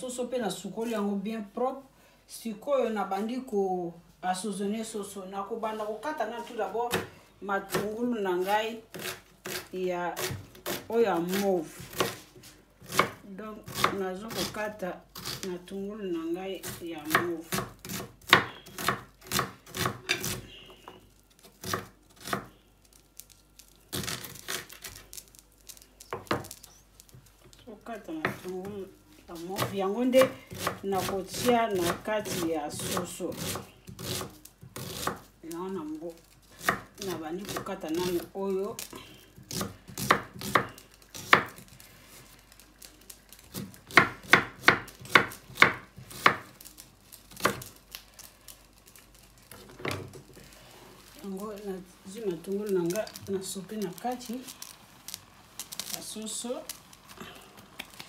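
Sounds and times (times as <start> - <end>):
knife chopping on wooden board: 29.6 - 35.2, 39.5 - 41.6, 43.5 - 46.5
knife chopping on cutting board: 43.5 - 46.5.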